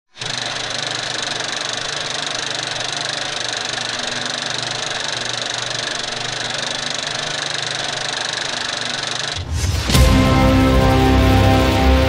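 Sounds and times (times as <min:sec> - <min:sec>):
film projector rattle and whir: 0:00.1 - 0:09.5.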